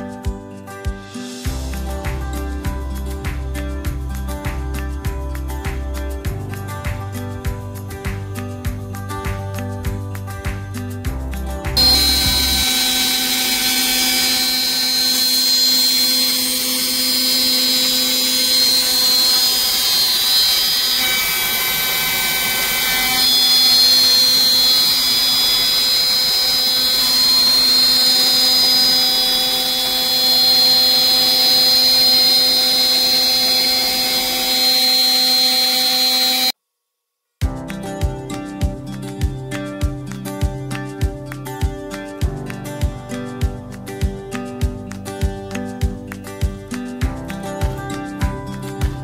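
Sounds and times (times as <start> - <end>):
cnc router milling aluminium: 11.8 - 36.5.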